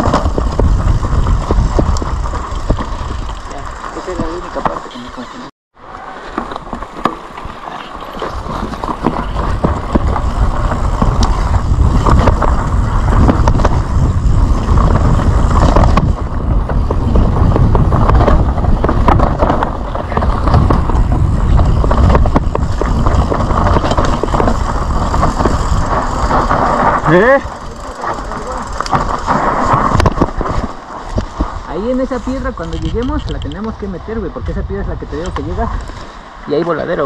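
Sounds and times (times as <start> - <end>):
tyres crunching over dirt and stones: 0.0 - 5.2, 6.1 - 33.7
wind rumbling over microphone: 0.0 - 5.2, 6.6 - 37.0
bike chain and frame rattling: 0.0 - 5.3, 6.9 - 30.7.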